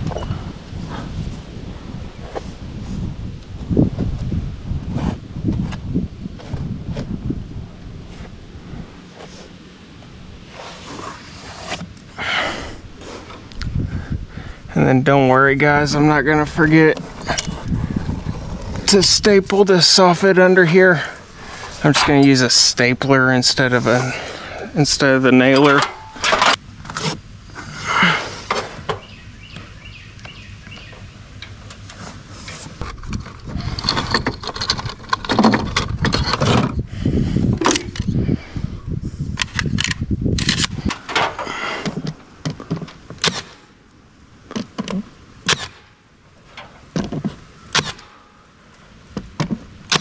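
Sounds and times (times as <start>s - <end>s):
tools clattering in metal bin: 25.6s - 26.6s.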